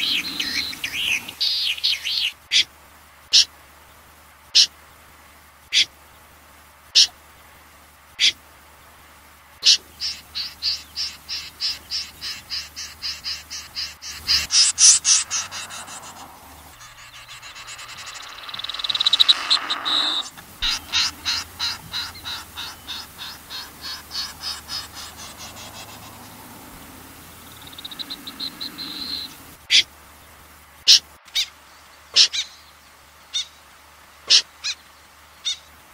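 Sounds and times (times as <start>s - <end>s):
buzzy bird trill: 0.0s - 2.3s, 9.6s - 29.8s
wading bird call notes: 0.0s - 2.6s, 9.6s - 29.8s.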